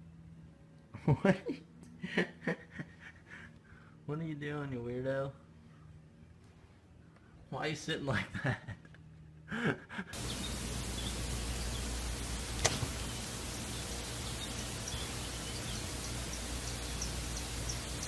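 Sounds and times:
faint high bird chirps: 10.2s - 18.0s
steady hiss: 10.2s - 18.0s.

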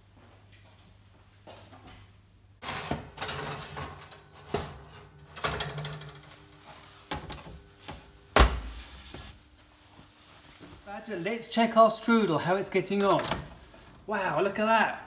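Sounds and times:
baking tray scraping: 2.6s - 7.2s
oven door opening: 2.6s - 8.8s, 13.0s - 13.6s
oven door shutting thump: 7.1s - 8.8s.

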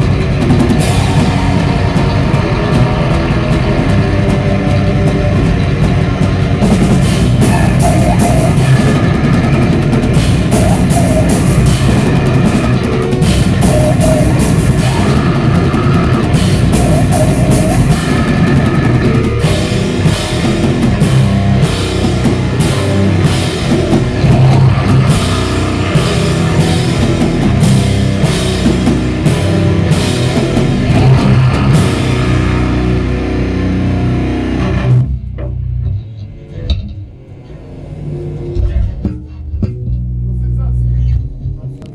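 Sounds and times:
drum kit with cymbal hits: 0.0s - 35.9s
distorted electric guitars: 0.0s - 41.9s.

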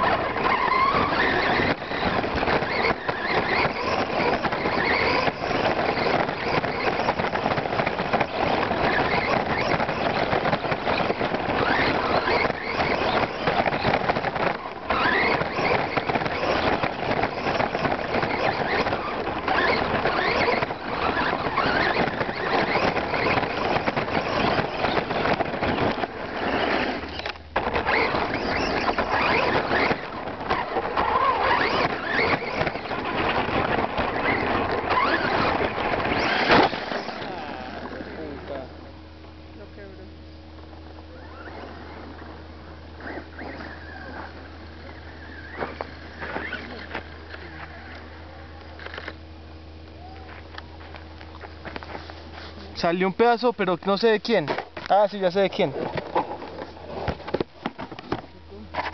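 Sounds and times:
electric motor whining: 0.0s - 38.9s, 39.6s - 54.4s
tyres and chassis rattling: 0.0s - 39.4s.

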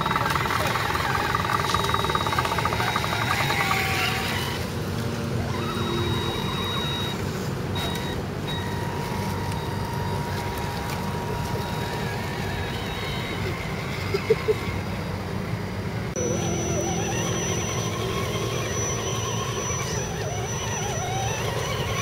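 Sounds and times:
toy car motor whirring: 0.0s - 4.7s, 5.4s - 15.1s, 16.1s - 22.0s.

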